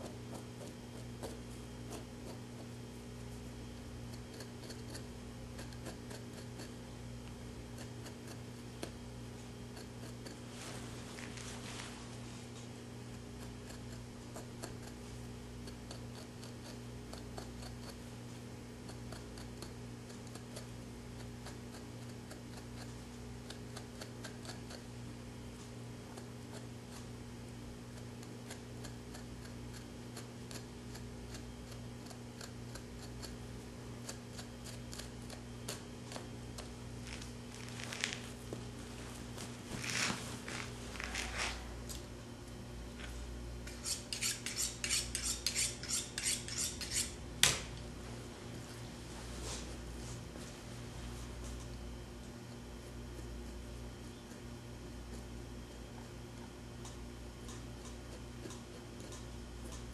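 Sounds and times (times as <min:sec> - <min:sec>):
low electrical hum: 0:00.0 - 0:59.9
knife scraping skin: 0:04.1 - 0:06.8, 0:43.7 - 0:47.2.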